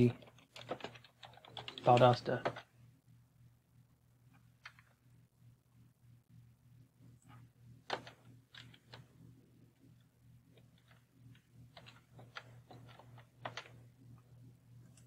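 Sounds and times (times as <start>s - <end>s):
steady low hum: 0.0s - 15.0s
keyboard typing clicks: 0.1s - 2.7s, 4.6s - 5.0s, 7.2s - 9.0s, 10.5s - 13.8s.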